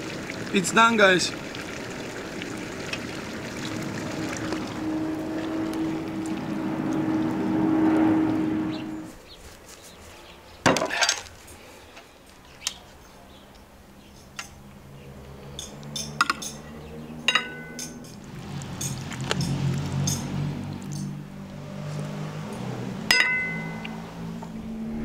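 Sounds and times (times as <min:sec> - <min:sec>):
dishes and cutlery clinking: 0:15.5 - 0:16.6, 0:17.3 - 0:18.2.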